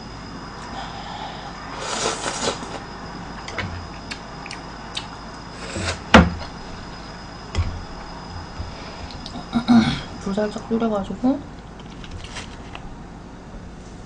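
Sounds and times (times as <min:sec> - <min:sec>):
slurping noodles: 0:01.7 - 0:02.8, 0:05.5 - 0:06.0.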